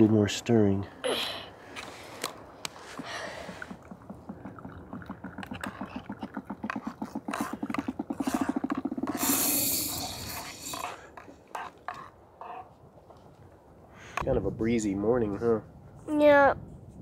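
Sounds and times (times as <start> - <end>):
hiss of air through plunger: 8.2 - 11.0.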